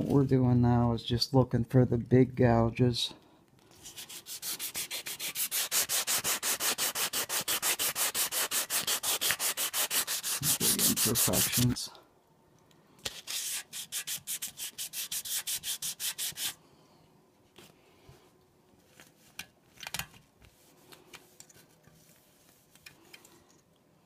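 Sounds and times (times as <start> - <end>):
sandpaper rubbing on metal: 3.8 - 11.8, 13.1 - 16.6.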